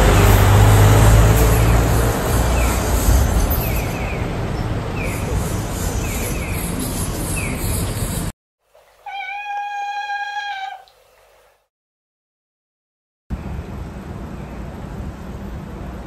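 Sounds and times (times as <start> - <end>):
city street traffic: 0.0 - 8.4, 13.3 - 16.0.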